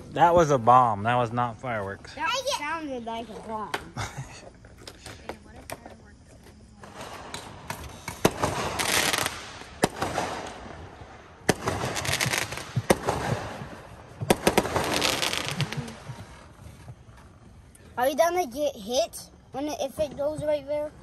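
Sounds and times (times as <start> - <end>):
fireworks crackling: 6.7 - 21.0
fireworks bangs: 6.8 - 17.5.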